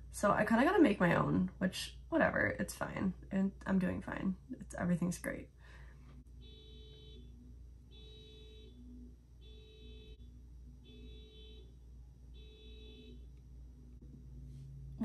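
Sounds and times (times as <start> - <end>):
low hum: 13.1 - 15.0.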